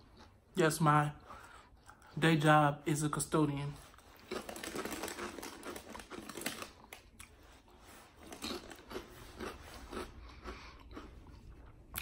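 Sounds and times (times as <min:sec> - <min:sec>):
crinkling and rustling: 0:03.7 - 0:09.1.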